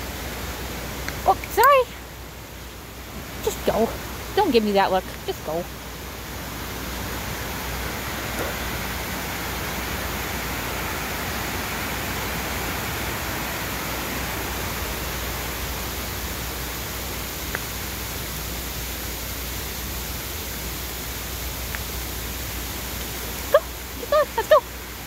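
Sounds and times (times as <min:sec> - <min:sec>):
river rapids rushing: 0:03.0 - 0:18.9.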